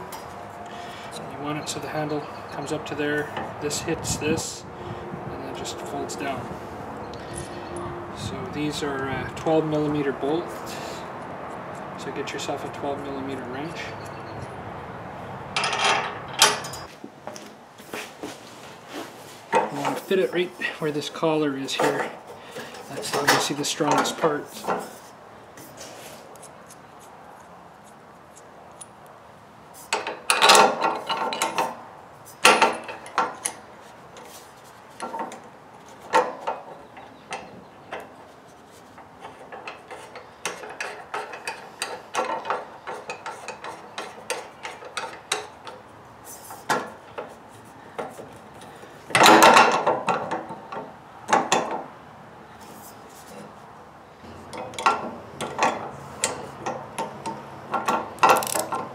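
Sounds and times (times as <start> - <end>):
metal parts clattering: 57.8 - 58.9.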